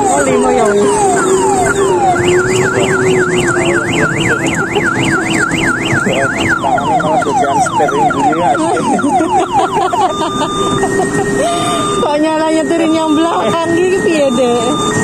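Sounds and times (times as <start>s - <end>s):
steady electronic tone: 0.0s - 15.0s
warbling electronic siren: 0.0s - 15.0s.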